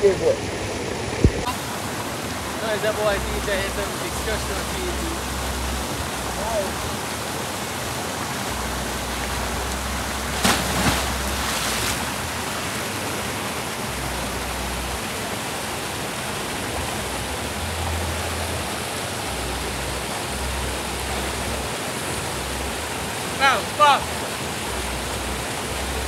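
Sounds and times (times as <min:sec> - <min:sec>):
waterfall rushing: 0:00.0 - 0:26.0
person diving splash: 0:10.2 - 0:12.3.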